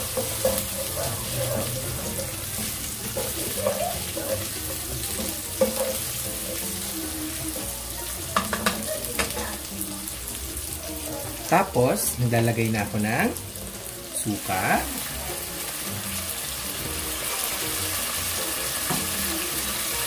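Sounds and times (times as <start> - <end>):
spatula stirring in pan: 0.0 - 11.4
food sizzling in hot oil: 0.0 - 20.0
spatula knocking against pan: 8.3 - 9.4.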